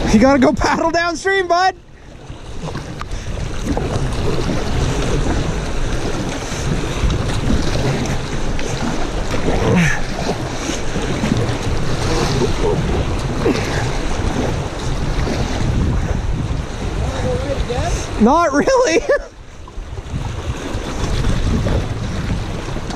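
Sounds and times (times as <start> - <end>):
river current rushing and splashing: 0.0 - 22.9
wind buffeting the microphone: 0.0 - 22.9
paddle blades dipping into water: 2.0 - 17.0.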